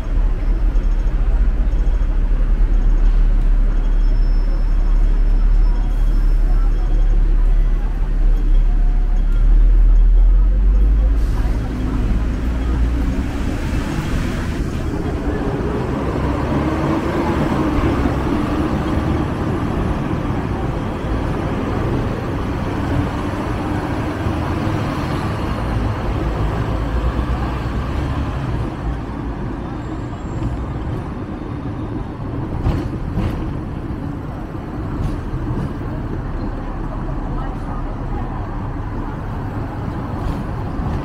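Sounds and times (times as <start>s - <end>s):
street traffic: 0.0s - 41.0s
tram wheels and motor rumbling: 0.0s - 41.0s.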